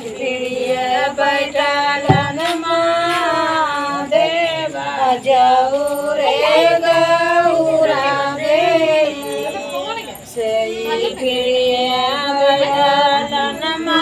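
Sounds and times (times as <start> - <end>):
women singing folk song: 0.0 - 14.0
short knock: 2.1 - 2.6.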